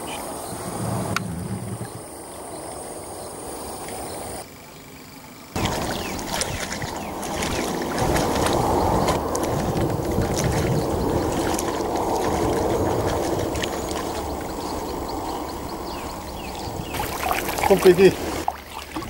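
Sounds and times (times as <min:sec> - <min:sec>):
high insect drone: 0:00.0 - 0:18.6
water lapping and splashing: 0:05.5 - 0:19.0.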